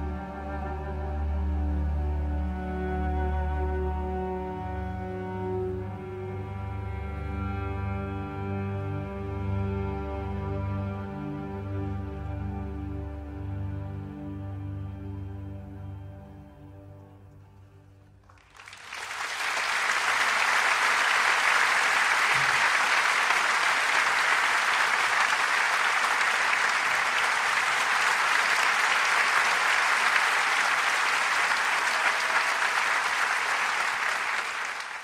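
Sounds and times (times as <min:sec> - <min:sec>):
background music: 0:00.0 - 0:18.2
large crowd applauding: 0:18.2 - 0:35.0.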